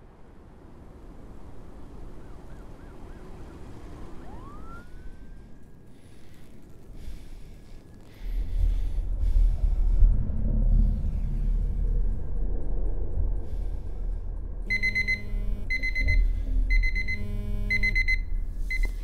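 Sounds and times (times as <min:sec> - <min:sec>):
faint low city hum: 0:00.0 - 0:19.0
distant siren wailing: 0:01.9 - 0:06.2, 0:14.6 - 0:18.4
deep low rumble: 0:07.3 - 0:19.0.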